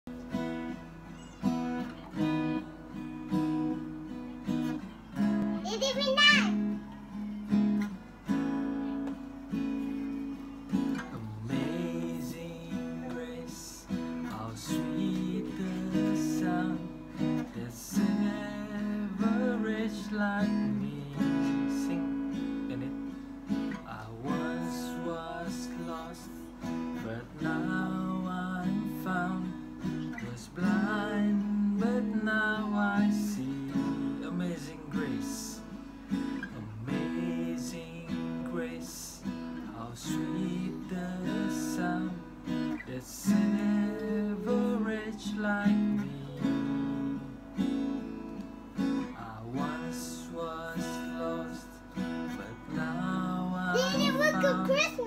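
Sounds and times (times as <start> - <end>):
guitar strummed and picked: 0.1 - 55.0
person singing: 10.6 - 23.1, 42.8 - 47.2, 49.2 - 55.0.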